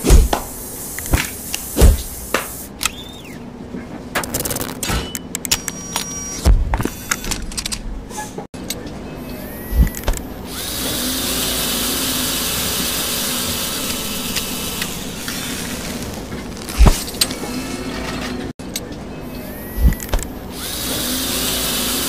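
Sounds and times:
machine thump: 0.0 - 0.5, 1.1 - 2.5
paint spray hiss: 0.0 - 2.8
mechanism clicks and knocks: 4.0 - 8.8.

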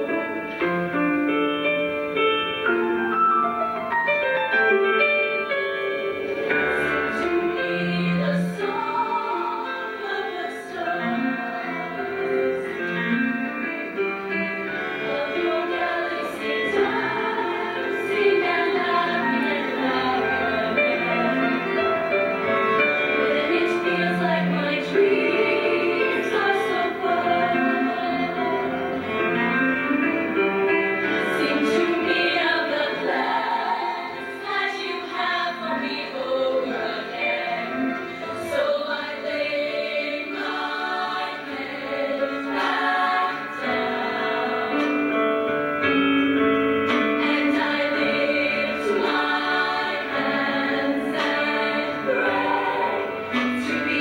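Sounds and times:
female choir singing in parts: 6.3 - 13.2, 14.6 - 29.5, 31.1 - 45.4, 46.9 - 54.0.

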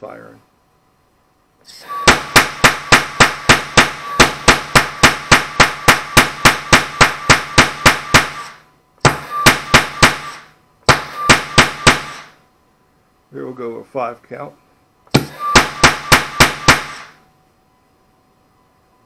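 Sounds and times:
low hum: 0.0 - 13.9, 14.6 - 19.0
noise cannon firing bangs: 1.9 - 12.4, 15.1 - 17.2.

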